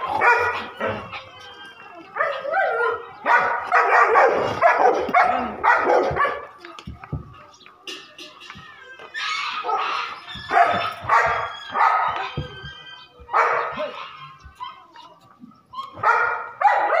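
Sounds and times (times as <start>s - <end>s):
dog barking: 0.1s - 1.0s, 2.2s - 6.5s, 10.5s - 12.2s, 13.3s - 14.0s, 16.0s - 17.0s.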